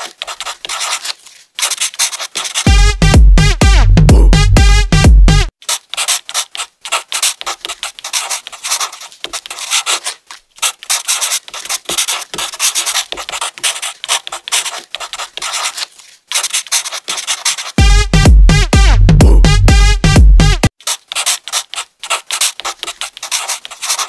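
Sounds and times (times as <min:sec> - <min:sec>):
marker scratching on paper: 0:00.0 - 0:02.7, 0:05.6 - 0:17.8, 0:20.7 - 0:24.0.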